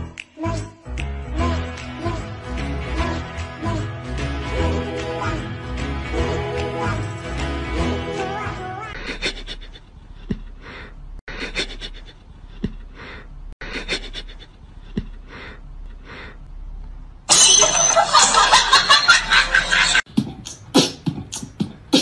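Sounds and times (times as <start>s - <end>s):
music with beatboxing: 20.1s - 22.0s.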